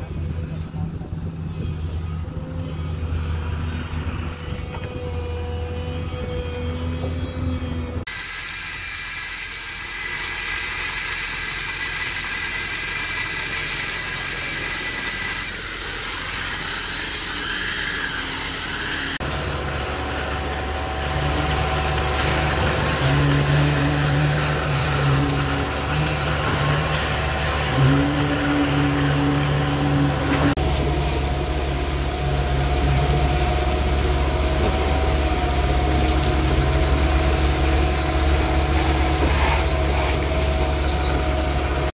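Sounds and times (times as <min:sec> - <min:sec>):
concrete pumping through hose: 0:08.1 - 0:30.5, 0:36.0 - 0:41.8
pump truck engine running: 0:19.2 - 0:41.9.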